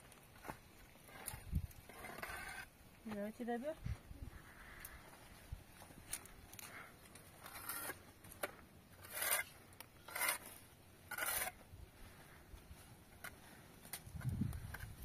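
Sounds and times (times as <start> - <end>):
short scraping strokes: 9.0 - 11.6.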